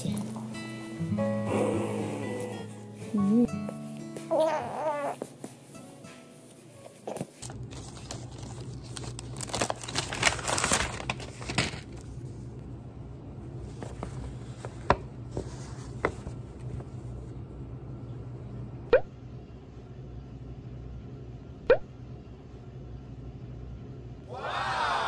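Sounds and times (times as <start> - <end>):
paper rustling and crinkling: 6.8 - 12.4.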